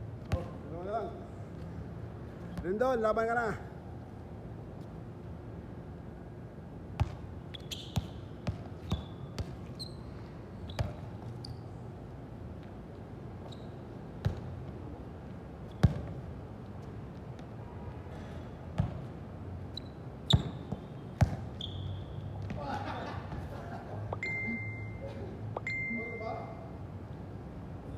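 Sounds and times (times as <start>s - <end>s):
shoes squeaking on floor: 7.5s - 11.8s, 13.4s - 13.9s, 19.7s - 22.6s.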